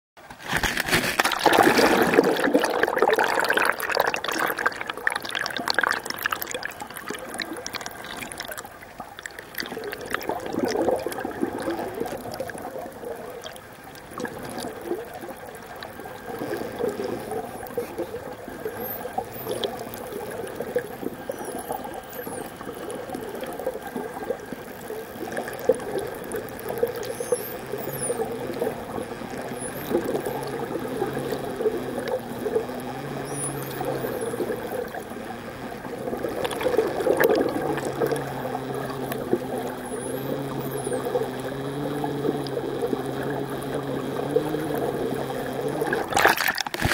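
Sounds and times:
water splashing and bubbling: 0:00.4 - 0:46.9
muffled underwater wash: 0:01.1 - 0:46.9.

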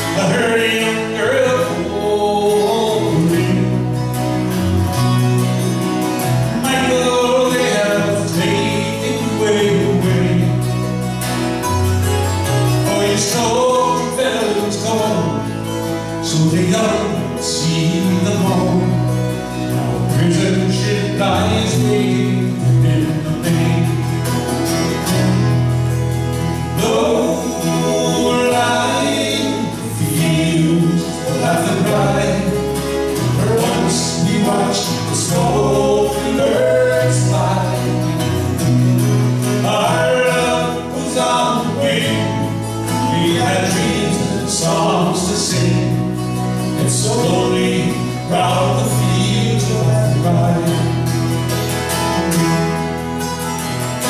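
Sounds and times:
bass guitar: 0:00.0 - 0:54.0
mandolin: 0:00.0 - 0:54.0
strummed acoustic guitars: 0:00.0 - 0:54.0
group singing in harmony: 0:06.5 - 0:10.8, 0:26.8 - 0:51.1.

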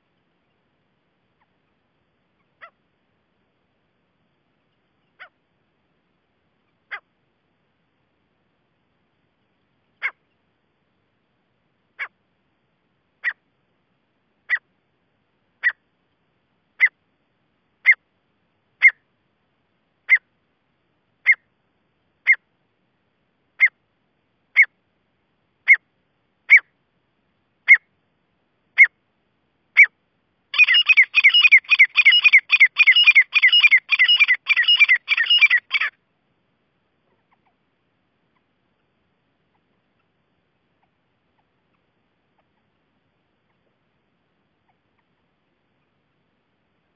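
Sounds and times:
francolin calling: 0:13.2 - 0:13.4, 0:15.6 - 0:15.8, 0:16.8 - 0:17.0, 0:18.8 - 0:19.0, 0:21.2 - 0:21.5, 0:22.2 - 0:22.4, 0:23.6 - 0:23.8, 0:24.5 - 0:24.8, 0:25.6 - 0:25.9, 0:26.5 - 0:26.7, 0:27.6 - 0:27.9, 0:28.8 - 0:29.0, 0:29.7 - 0:36.0.

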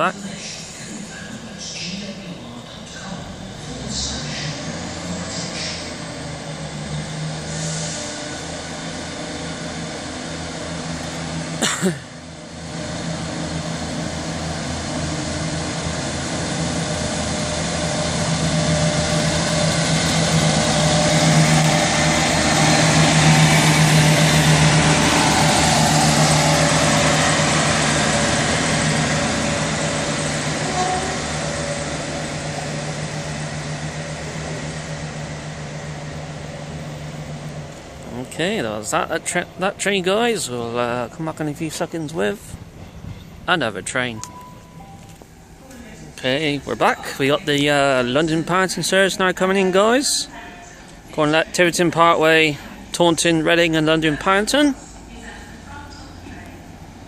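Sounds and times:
diesel train engines running: 0:00.0 - 0:57.0
wheel and rail noise: 0:00.0 - 0:57.0.

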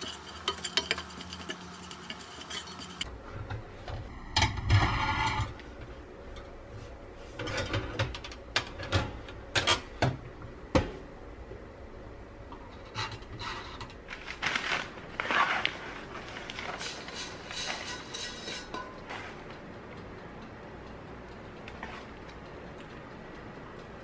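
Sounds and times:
paper rustling: 0:14.1 - 0:16.9
metal baking tray clanking: 0:16.8 - 0:19.2.

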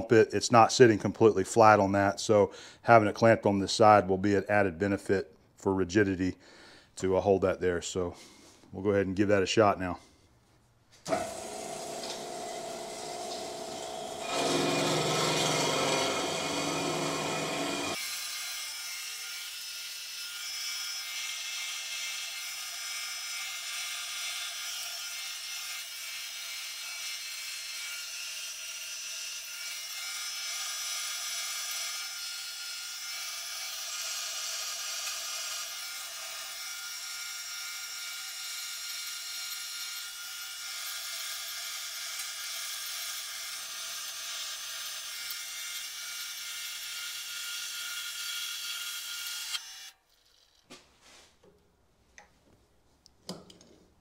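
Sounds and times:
band saw cutting steel: 0:11.1 - 0:50.6.

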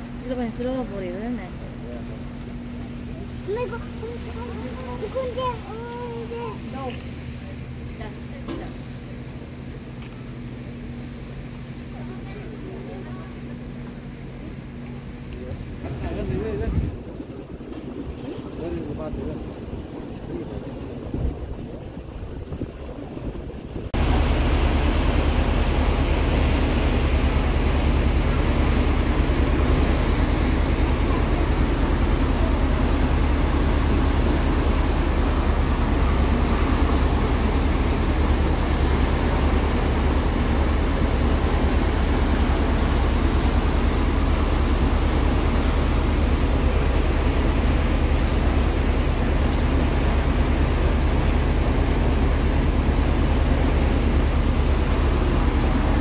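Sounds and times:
boat engine drone: 0:00.0 - 0:56.0
water churning: 0:00.0 - 0:56.0
wind on microphone: 0:15.7 - 0:56.0.

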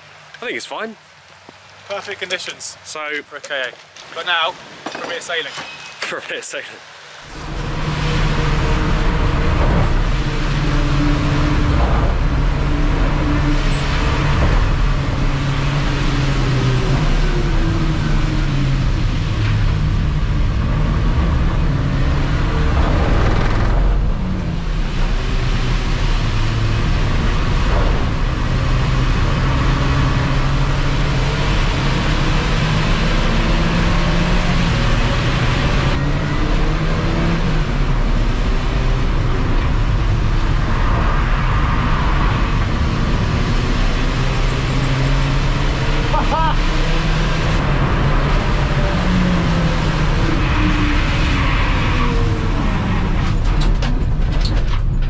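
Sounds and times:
tyre noise on wet road: 0:00.0 - 0:55.0
race car engine revving: 0:07.3 - 0:54.2.

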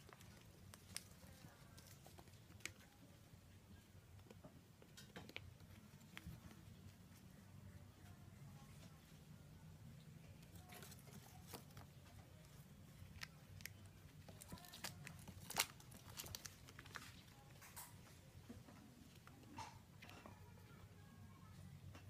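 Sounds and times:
low steady hum: 0:00.0 - 0:22.0
plastic crinkling: 0:10.5 - 0:17.9.

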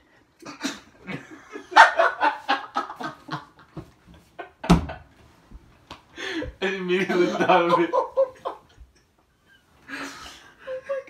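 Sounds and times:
person laughing: 0:06.2 - 0:08.8, 0:09.9 - 0:11.0.

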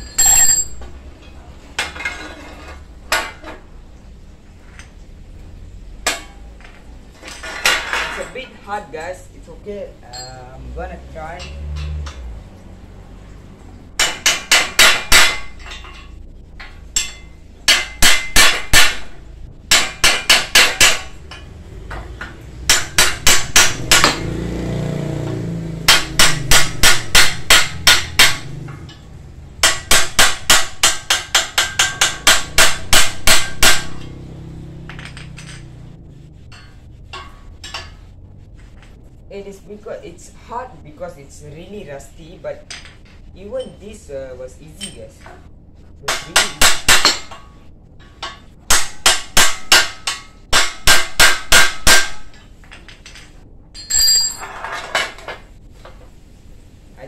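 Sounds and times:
hammer striking metal part: 0:06.0 - 0:08.3, 0:14.0 - 0:24.4, 0:25.3 - 0:39.0, 0:46.0 - 0:55.4.

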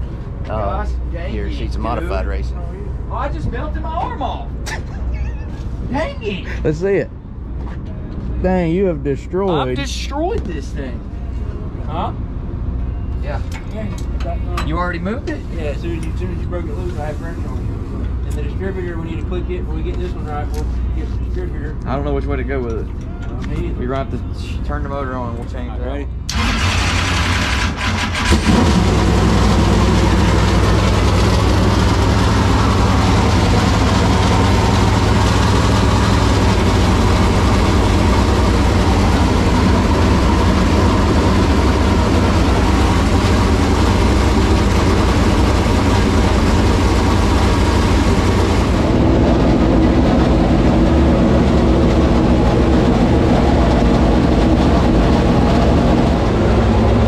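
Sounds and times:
race engine idling: 0:14.7 - 0:57.0
engine cranking: 0:26.3 - 0:57.0.

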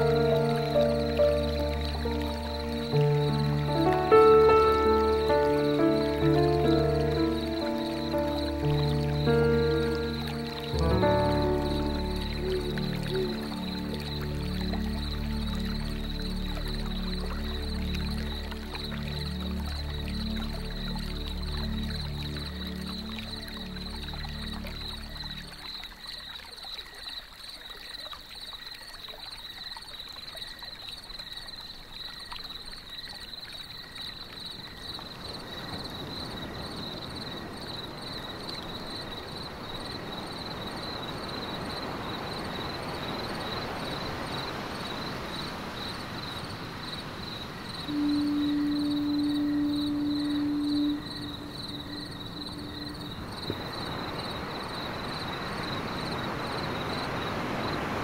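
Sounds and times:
long low ship horn blast: 0:00.0 - 0:18.4, 0:47.8 - 0:54.2
faint high pulsing whine: 0:47.7 - 0:58.0.

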